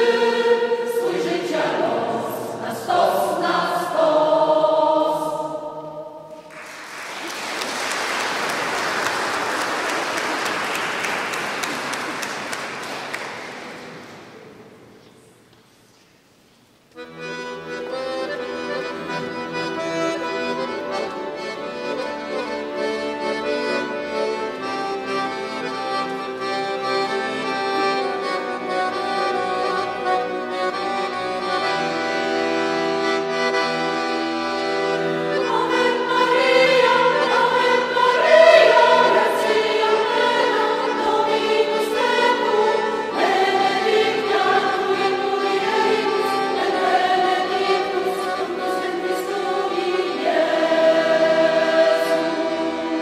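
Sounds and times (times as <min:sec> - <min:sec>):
mixed choir singing: 0:00.0 - 0:06.4, 0:35.2 - 0:53.0
accordion playing chords: 0:17.0 - 0:53.0.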